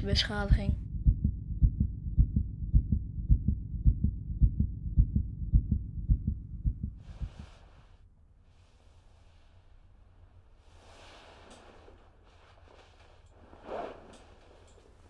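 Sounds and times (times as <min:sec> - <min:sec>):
fetal heartbeat on doppler: 0:00.7 - 0:07.5.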